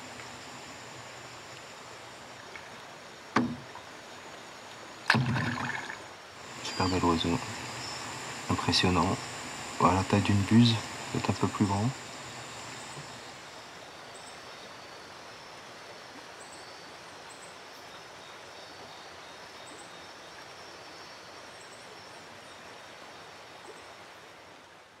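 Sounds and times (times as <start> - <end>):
wetland ambience hiss: 0.0 - 25.0
faint high chirps: 6.5 - 13.4.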